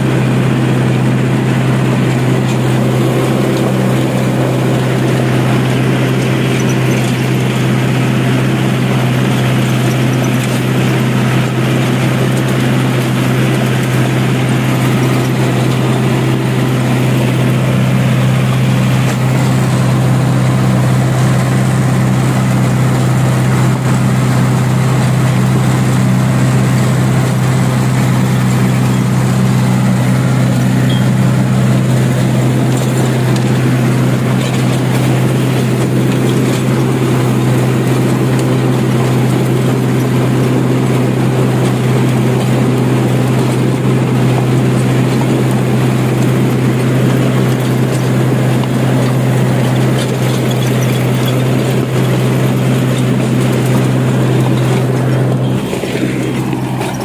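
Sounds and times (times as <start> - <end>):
tractor diesel engine under load: 0.0 - 57.0.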